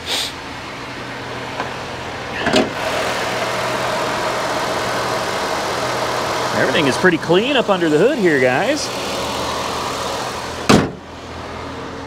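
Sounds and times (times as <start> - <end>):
small car engine idling: 0.0 - 12.0
car hood clunk: 2.4 - 2.8, 10.6 - 11.0.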